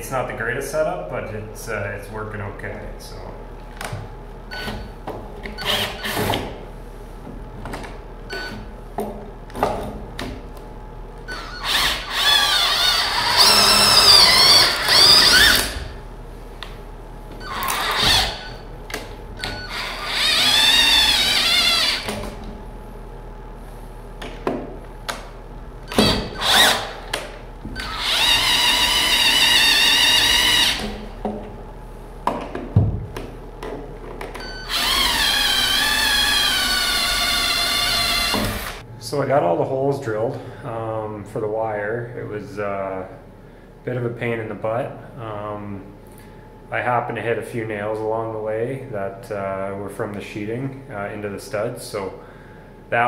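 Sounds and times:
cordless drill boring wood: 5.6s - 6.4s, 11.3s - 15.9s, 17.5s - 18.6s, 19.4s - 22.2s, 25.9s - 27.0s, 27.8s - 31.0s, 34.6s - 38.8s.

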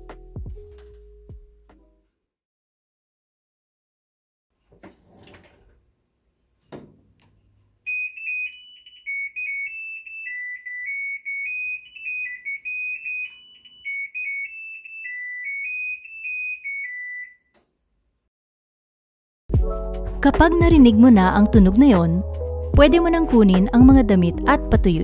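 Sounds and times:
washing machine beeper tune: 7.9s - 17.5s.

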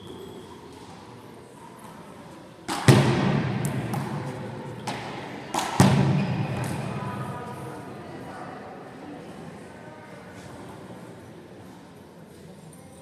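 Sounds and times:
ball smacks with echo: 2.7s - 7.1s.

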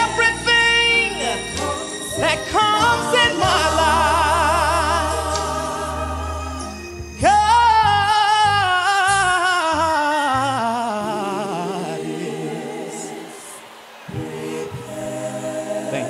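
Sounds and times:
man singing with vibrato: 0.0s - 6.3s, 7.2s - 13.2s
soft instrumental accompaniment: 0.0s - 12.3s.

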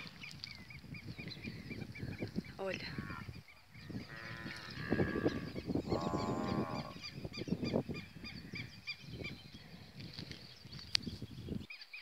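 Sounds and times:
small birds chirping: 0.0s - 12.0s
farm animals calling: 2.0s - 8.7s.

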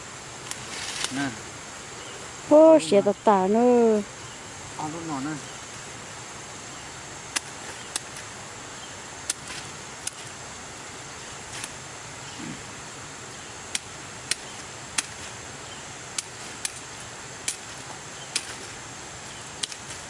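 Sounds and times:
high-pitched insect drone: 0.6s - 19.5s
sharp clicks: 7.3s - 8.3s, 16.1s - 16.8s, 19.6s - 20.0s.

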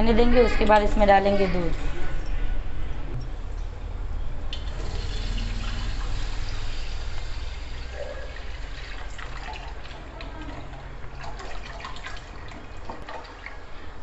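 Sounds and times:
milk pouring and splashing: 4.6s - 13.7s.

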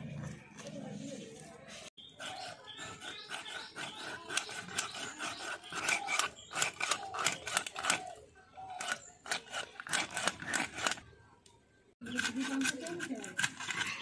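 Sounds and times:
fish scales rasping on a blade: 2.2s - 11.0s, 12.0s - 14.0s.

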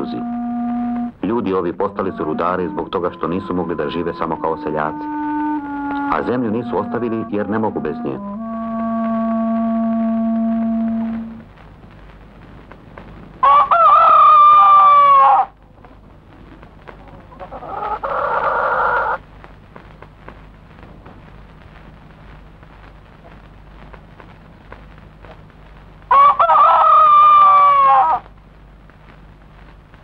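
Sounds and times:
rooster crowing: 13.4s - 15.6s, 17.3s - 19.2s, 26.1s - 28.3s
rough animal call: 17.0s - 19.2s.

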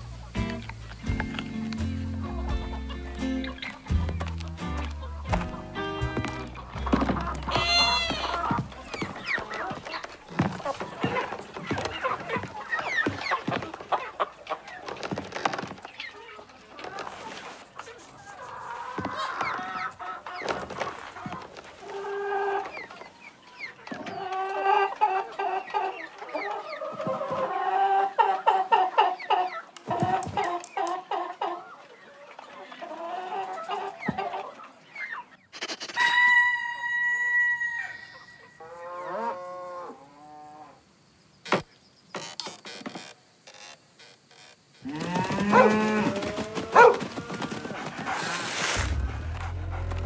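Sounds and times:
hens clucking: 0.0s - 36.9s, 44.8s - 50.0s.

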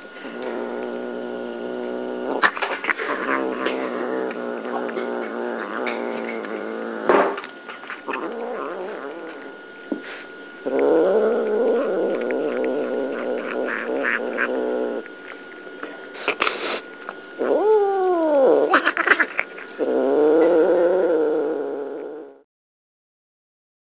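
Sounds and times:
cats growling: 0.0s - 22.5s
cat yowl: 11.7s - 14.6s, 17.4s - 19.5s.

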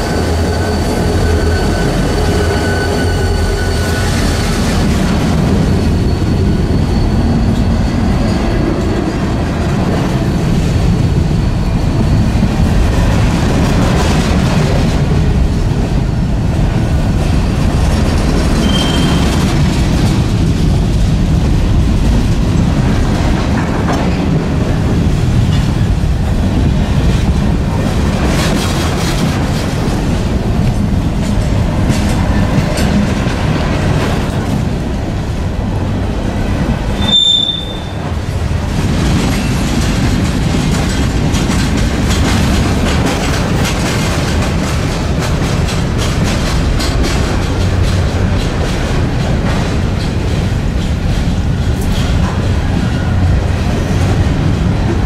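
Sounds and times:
high wheel squeal: 0.0s - 9.2s, 18.5s - 19.5s, 37.0s - 38.2s
freight train rumbling past: 0.0s - 55.0s
wheels clacking over rail joints: 36.6s - 55.0s.

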